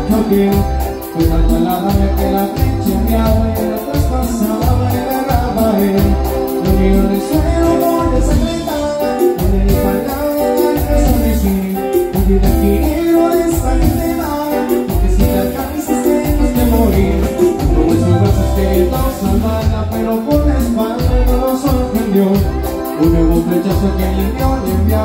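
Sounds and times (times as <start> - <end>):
drums: 0.0 - 25.0
electric bass: 0.0 - 25.0
electric guitar: 0.0 - 25.0
keyboard: 0.0 - 25.0.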